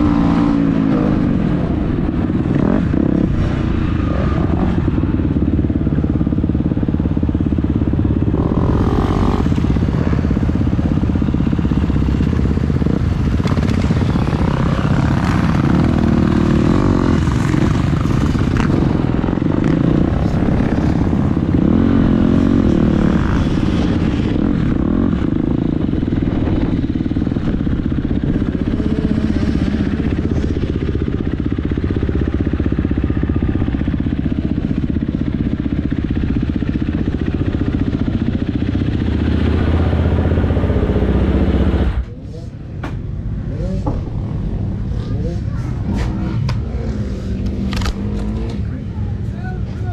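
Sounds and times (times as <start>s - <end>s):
dirt bike engine running: 0.0s - 49.3s.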